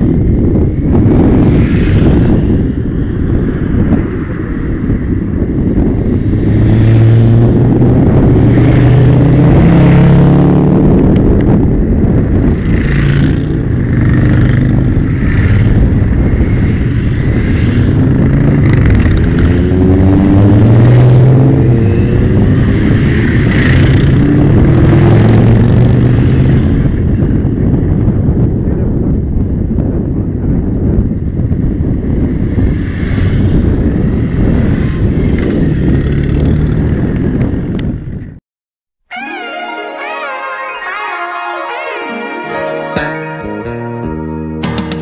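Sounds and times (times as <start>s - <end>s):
motorcycles riding past: 12.4s - 26.9s.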